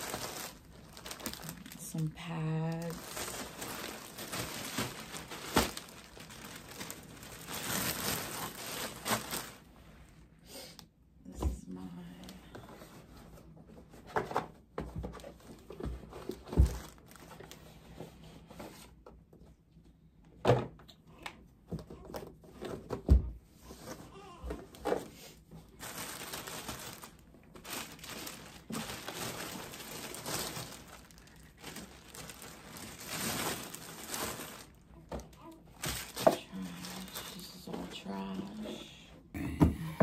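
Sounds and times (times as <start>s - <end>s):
plastic crinkling: 0.0s - 9.7s, 15.1s - 17.7s, 23.8s - 38.7s.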